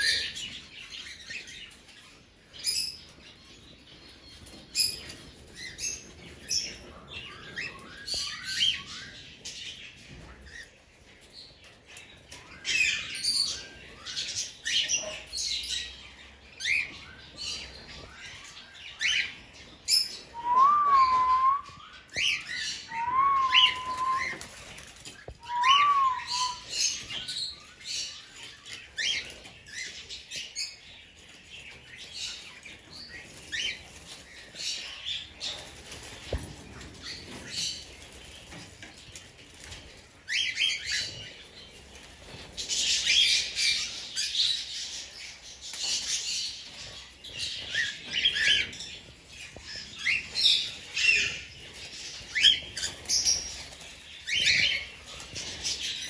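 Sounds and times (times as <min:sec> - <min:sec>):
cockatiels chirping: 0:20.0 - 0:24.4, 0:25.4 - 0:27.6
whistled notes: 0:20.4 - 0:21.8, 0:22.9 - 0:24.4, 0:25.4 - 0:26.8.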